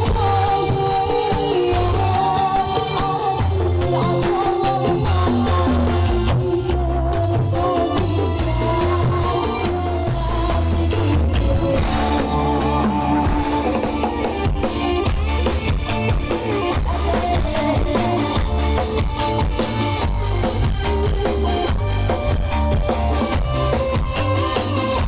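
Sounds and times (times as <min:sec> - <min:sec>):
drum kit beat: 0:00.0 - 0:25.0
live band music over sound system: 0:00.0 - 0:25.0
heavy bass: 0:09.8 - 0:25.0.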